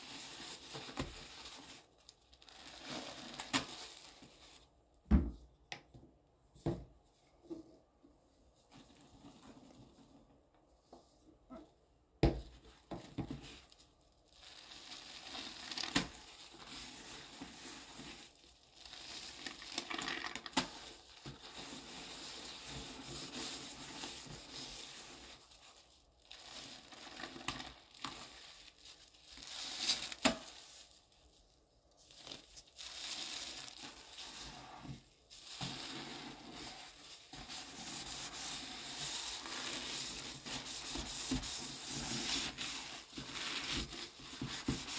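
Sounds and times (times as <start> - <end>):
sponge scrubbing wet paste: 20.6 - 30.9, 32.7 - 44.9.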